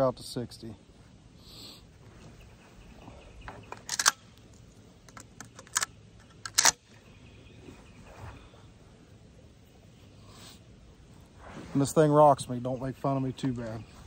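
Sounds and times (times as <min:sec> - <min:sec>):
shotgun action clicks: 0:03.7 - 0:06.9.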